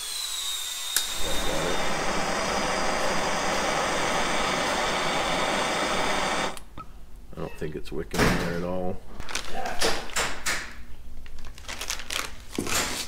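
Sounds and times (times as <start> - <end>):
gas torch hissing: 0.0 - 6.7.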